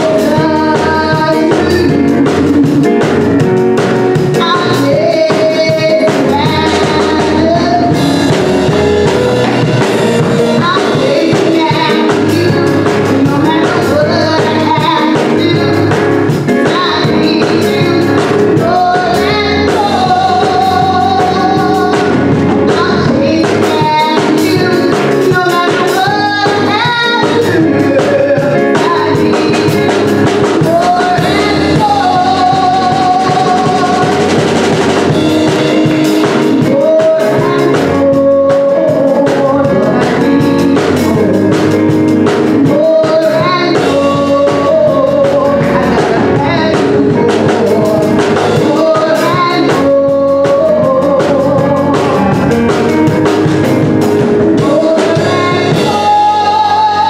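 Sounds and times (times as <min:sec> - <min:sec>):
instrumental accompaniment with drums: 0:00.0 - 0:57.0
woman singing gospel: 0:00.0 - 0:57.0.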